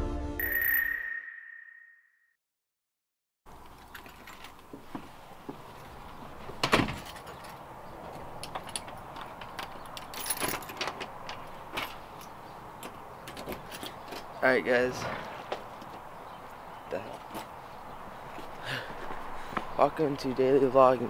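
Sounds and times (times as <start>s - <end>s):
keys jingling: 3.8s - 4.6s, 8.3s - 10.9s.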